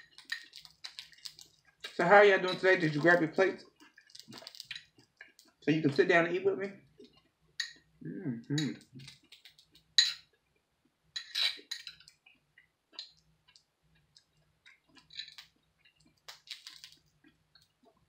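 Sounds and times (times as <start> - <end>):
utensil clinking: 1.9 - 3.3
chewing clicks: 3.8 - 5.6, 8.9 - 9.9, 12.0 - 17.8.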